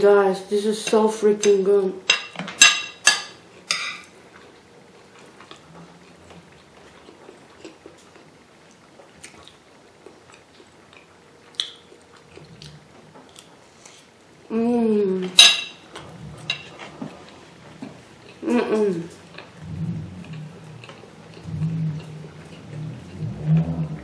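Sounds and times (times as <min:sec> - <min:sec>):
soft chewing: 0:03.4 - 0:14.3, 0:15.9 - 0:24.0
person humming mmm: 0:18.4 - 0:24.0.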